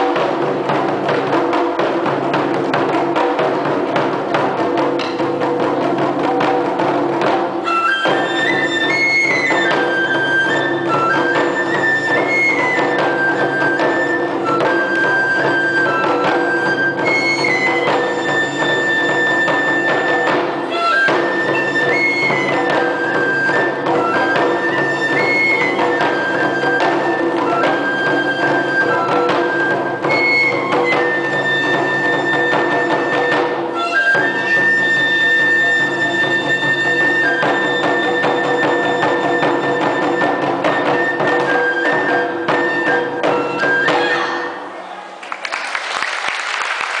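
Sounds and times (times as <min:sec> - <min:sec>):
taiko drums beaten in rhythm: 0:00.0 - 0:44.6
bamboo flute melody: 0:00.0 - 0:44.7
applause: 0:45.1 - 0:47.0.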